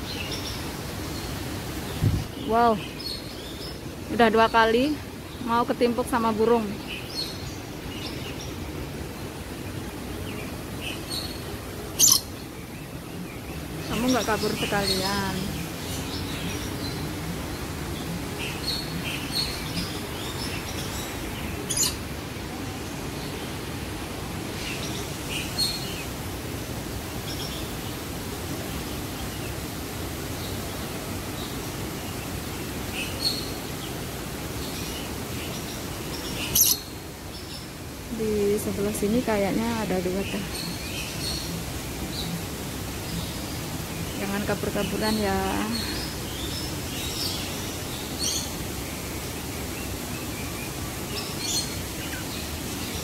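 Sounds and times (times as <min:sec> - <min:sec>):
birds chirping: 0:00.0 - 0:53.0
small waterfall rushing: 0:00.0 - 0:53.0
steady background hiss: 0:00.0 - 0:53.0.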